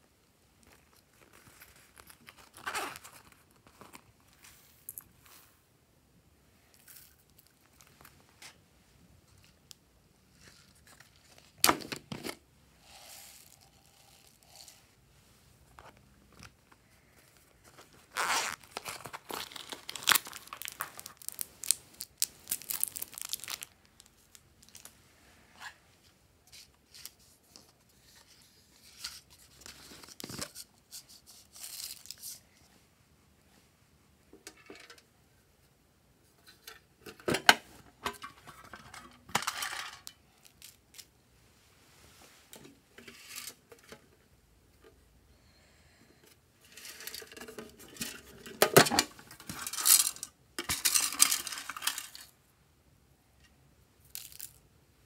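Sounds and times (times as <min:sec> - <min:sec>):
cellophane crinkling and tearing: 0:00.6 - 0:04.1, 0:17.7 - 0:24.9.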